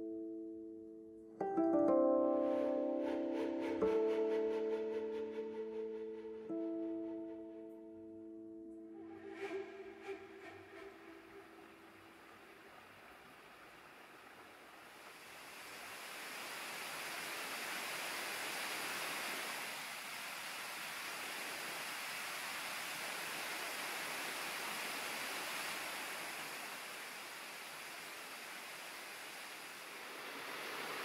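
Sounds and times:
cascading stream rushing: 0:11.5 - 0:31.0.

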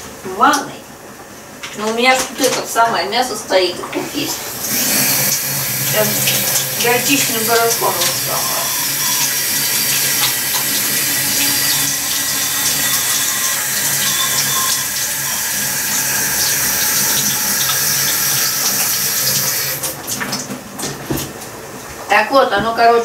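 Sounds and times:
tap running into sink: 0:03.9 - 0:21.5.

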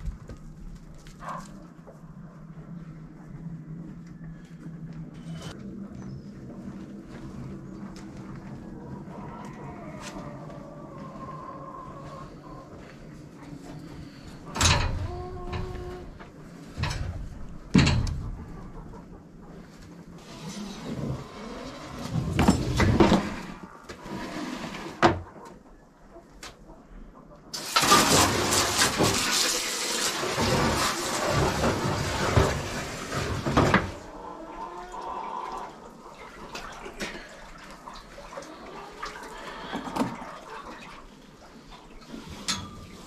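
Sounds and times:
sharp knocks and clanks: 0:16.8 - 0:18.4
hose water splashing into metal tub: 0:27.5 - 0:34.1, 0:35.4 - 0:43.0.

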